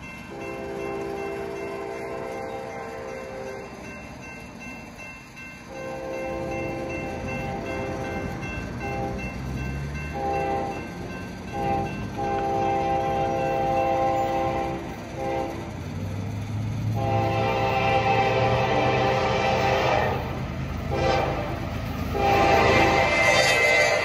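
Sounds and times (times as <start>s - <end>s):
crossing bell ringing: 0.0s - 24.0s
diesel locomotive rumble: 0.0s - 24.0s
locomotive horn blasts: 0.3s - 3.6s, 5.7s - 8.0s, 8.8s - 9.2s, 10.1s - 10.8s, 11.5s - 15.8s, 16.9s - 24.0s.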